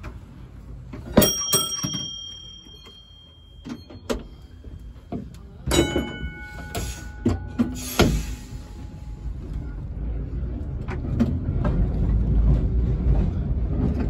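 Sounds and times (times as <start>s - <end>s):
high-pitched tram bell: 1.2s - 5.0s, 5.6s - 8.0s
lower-pitched tram bell: 1.2s - 7.9s.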